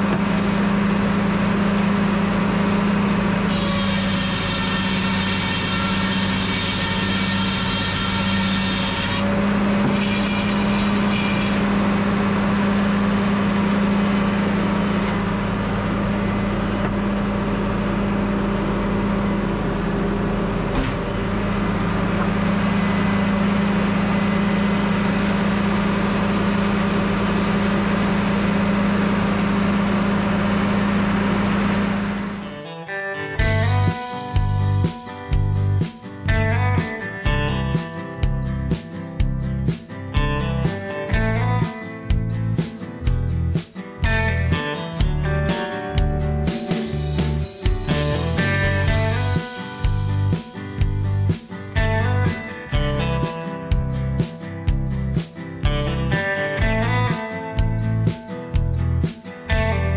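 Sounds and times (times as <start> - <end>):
saw blade whining through log: 0.0 - 15.4, 48.0 - 50.0
sawmill humming: 0.0 - 32.6, 33.4 - 39.8, 40.4 - 59.9.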